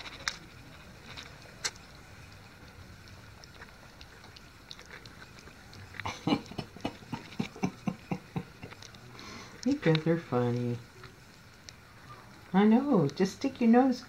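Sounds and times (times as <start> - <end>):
dog lapping wet food: 1.6 - 9.0.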